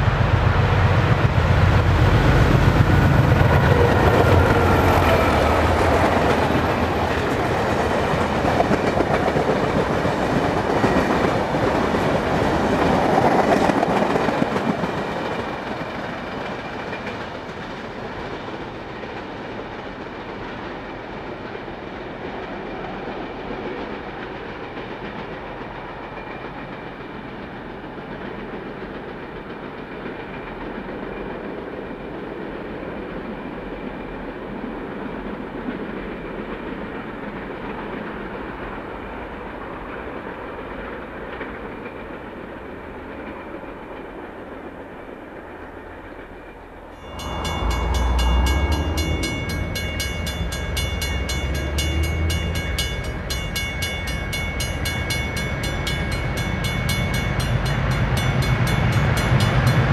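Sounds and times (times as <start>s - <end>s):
diesel locomotive engine throbbing: 0.0s - 16.0s, 46.6s - 59.9s
train rumbling along track: 0.0s - 59.9s.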